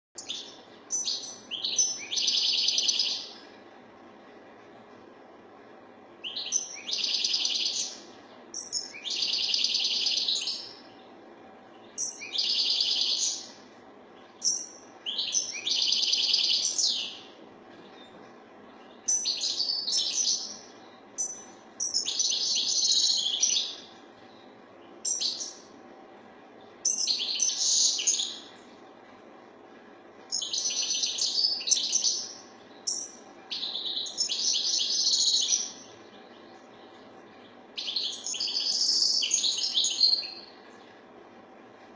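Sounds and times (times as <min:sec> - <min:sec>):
goldfinch twittering song: 0:00.2 - 0:03.4, 0:06.2 - 0:11.0, 0:11.7 - 0:13.6, 0:14.2 - 0:18.1, 0:18.7 - 0:25.7, 0:26.8 - 0:28.6, 0:30.3 - 0:40.6.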